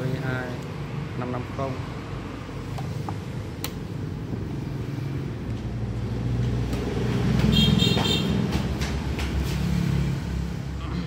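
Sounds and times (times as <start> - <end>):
vehicle engine rumbling past: 4.6 - 10.8.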